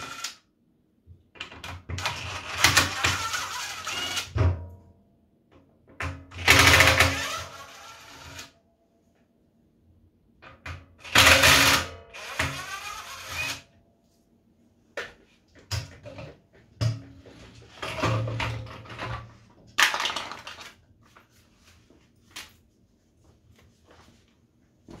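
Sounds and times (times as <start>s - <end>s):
drill driving screws into plastic: 0.0s - 0.4s, 1.8s - 4.4s, 6.3s - 8.5s, 11.0s - 13.7s.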